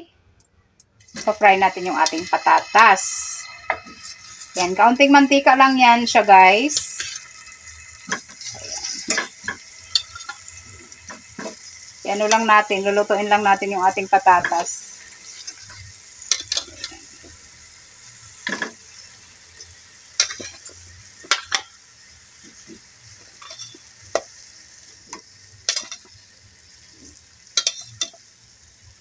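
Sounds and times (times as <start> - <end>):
potatoes sizzling in oil: 1.0 - 29.0
metal tongs clicking and clattering: 8.1 - 10.4, 25.1 - 26.1, 27.6 - 28.2.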